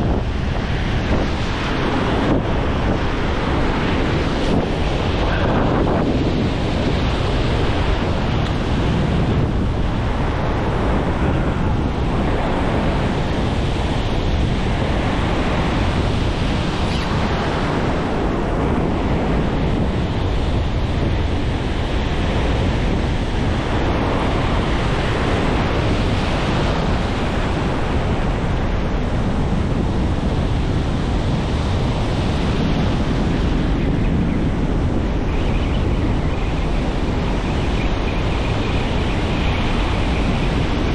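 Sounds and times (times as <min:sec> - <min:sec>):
surf breaking on beach: 0:00.0 - 0:40.9
wind buffeting microphone: 0:00.0 - 0:40.9.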